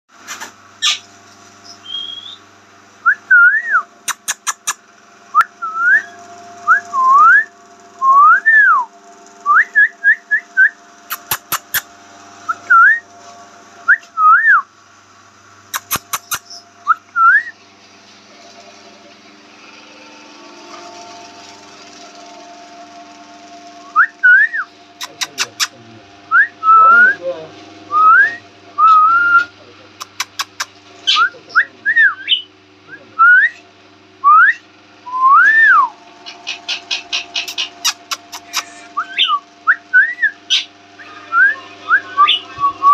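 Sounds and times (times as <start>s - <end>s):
parakeet whistling: 0.8s - 2.4s, 9.5s - 11.9s, 15.7s - 17.6s, 30.3s - 32.5s, 34.3s - 42.9s
sharp clicks: 4.1s - 4.8s, 11.1s - 11.9s, 15.8s - 16.6s, 30.0s - 30.7s.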